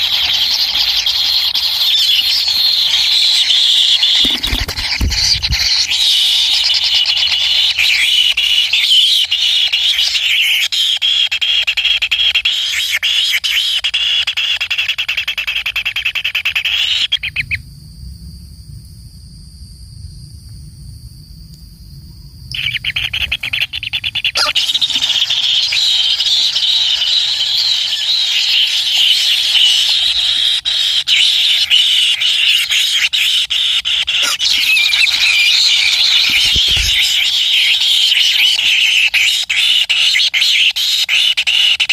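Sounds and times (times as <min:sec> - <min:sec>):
nestlings begging calls: 0:00.0 - 0:12.9, 0:22.5 - 0:41.6.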